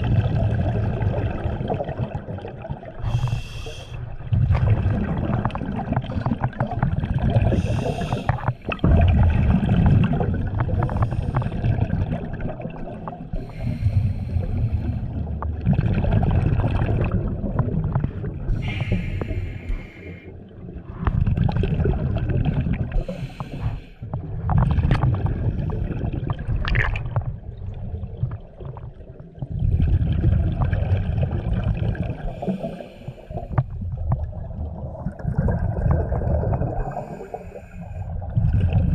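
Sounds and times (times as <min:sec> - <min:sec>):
exhaled bubbles rumbling: 0:00.0 - 0:38.9
scuba regulator breathing underwater: 0:03.0 - 0:04.0, 0:07.4 - 0:08.8, 0:10.8 - 0:11.7, 0:13.4 - 0:15.3, 0:18.5 - 0:20.4, 0:22.9 - 0:24.0, 0:32.2 - 0:33.6, 0:36.7 - 0:38.2
hissing inhalations: 0:03.1 - 0:04.0, 0:07.6 - 0:08.5, 0:18.6 - 0:20.3.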